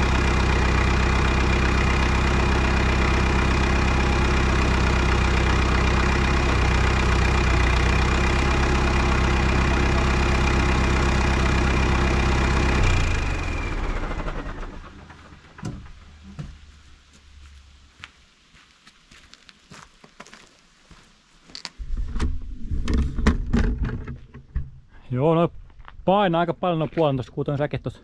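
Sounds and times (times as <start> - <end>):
tractor diesel engine idling: 0.0 - 17.1
engine whine running down: 0.0 - 17.6.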